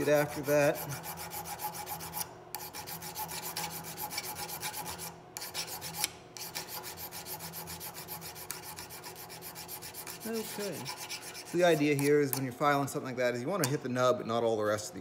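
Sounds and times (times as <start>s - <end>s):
hand file rasping on metal: 0.0s - 12.5s.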